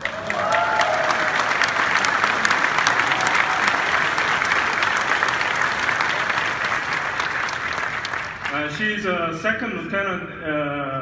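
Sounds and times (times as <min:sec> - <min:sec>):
large audience applauding: 0:00.0 - 0:08.8.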